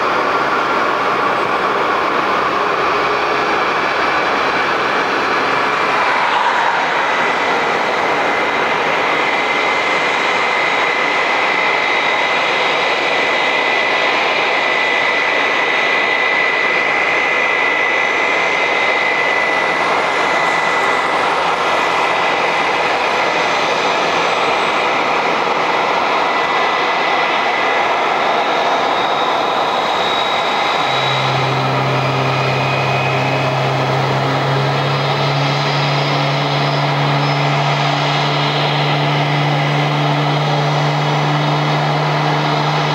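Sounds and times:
jet engine roar and whine: 0.0 - 42.9
low hum: 1.4 - 11.4, 19.5 - 42.9.

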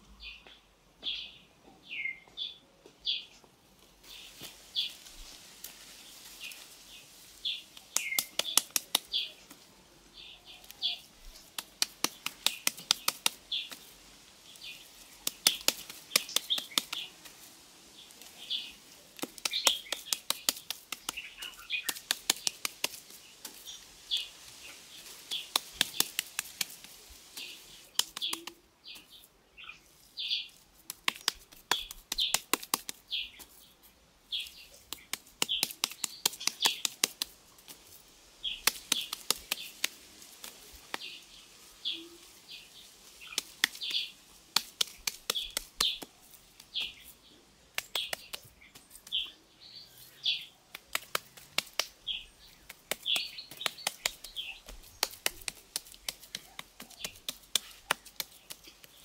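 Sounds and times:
small birds chirping: 0.0 - 59.0
rapid sharp clicks: 11.5 - 13.8, 15.2 - 17.0.

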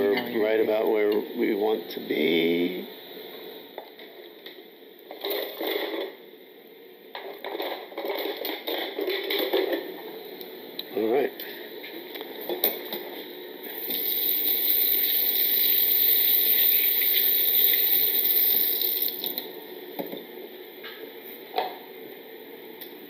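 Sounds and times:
chicken sizzling in a skillet: 13.6 - 19.3.

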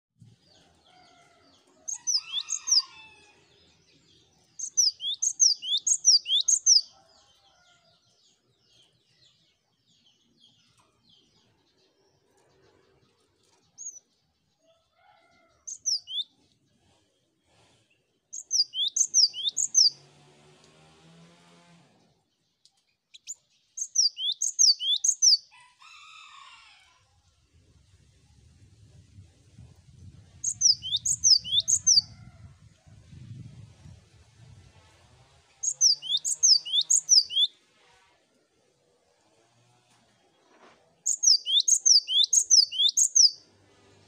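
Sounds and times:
bird singing whistled notes: 4.6 - 6.9, 18.4 - 19.9, 23.2 - 25.4, 30.4 - 32.1, 35.6 - 37.5, 41.1 - 43.4.

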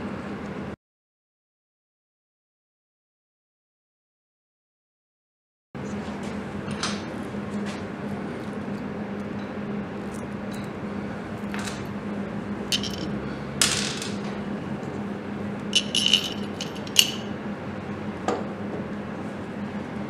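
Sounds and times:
steady low hum: 9.9 - 18.1
metal parts clicking and clinking: 12.7 - 14.2, 15.8 - 17.3.

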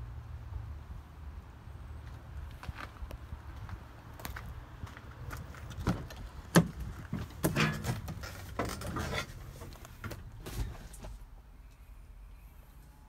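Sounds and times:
person climbing into cab: 5.7 - 11.2.

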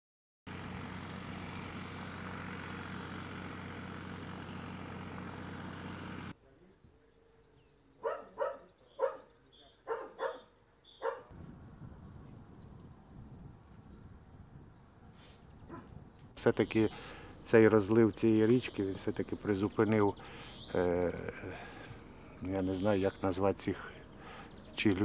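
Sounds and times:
motor hum: 0.5 - 6.4, 15.8 - 25.0
dog barking: 8.0 - 11.3, 15.7 - 16.0.

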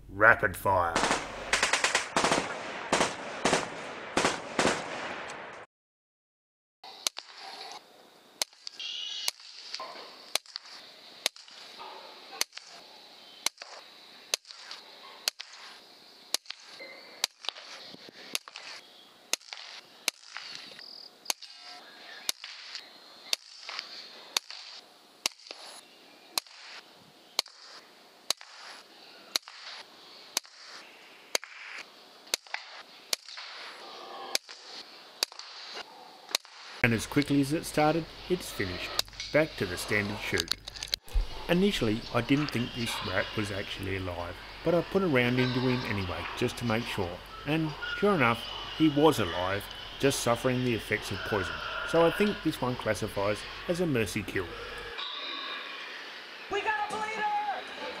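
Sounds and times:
air rifle shots cracking: 1.0 - 5.6, 13.4 - 20.7, 22.2 - 25.8, 27.4 - 38.0
high-pitched background hiss: 6.9 - 58.0.

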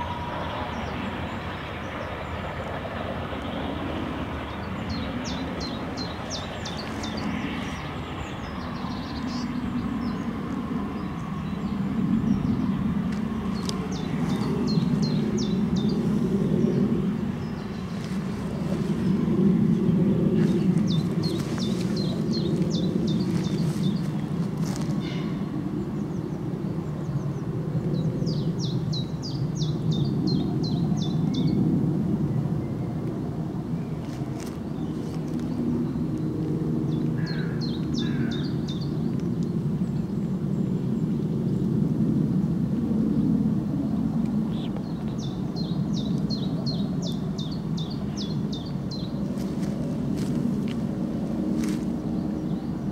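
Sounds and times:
distant steam train rumble: 0.0 - 27.2
birds chirping: 0.0 - 31.6, 32.6 - 41.7, 43.8 - 52.9.

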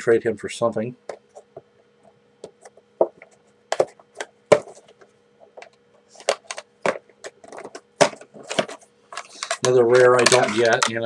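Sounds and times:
plastic wrapper crinkling: 8.4 - 11.0.

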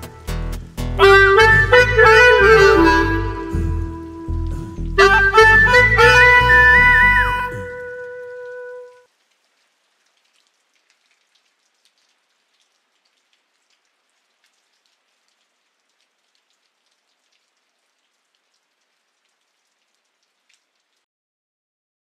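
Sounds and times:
faint rain patter: 0.0 - 21.1.

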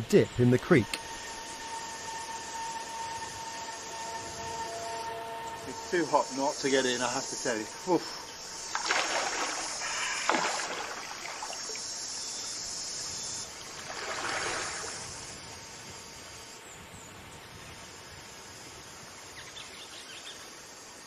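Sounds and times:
high insect chorus: 0.0 - 21.0
person splashing in water: 8.7 - 11.8, 13.8 - 15.0.

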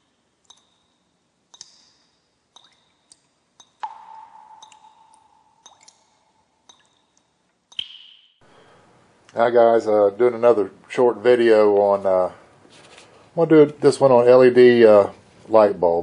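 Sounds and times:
short clicking pings: 3.6 - 6.0, 6.7 - 8.4
low ringing tone: 3.8 - 7.2.

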